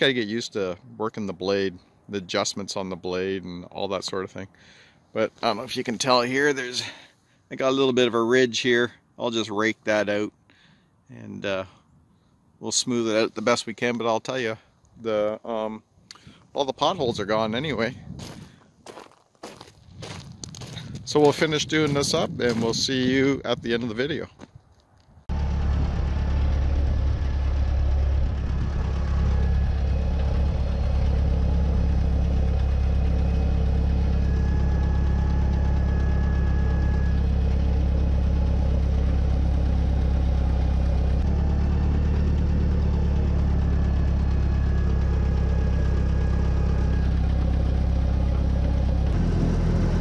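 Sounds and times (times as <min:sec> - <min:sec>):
tractor engine running: 0:20.0 - 0:23.2, 0:25.3 - 0:50.0.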